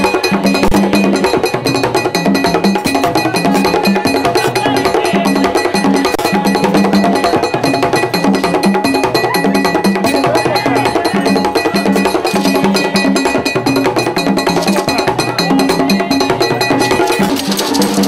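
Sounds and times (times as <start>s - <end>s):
hand drums beating fast rhythm: 0.0s - 18.0s
percussion clicking: 0.0s - 18.0s.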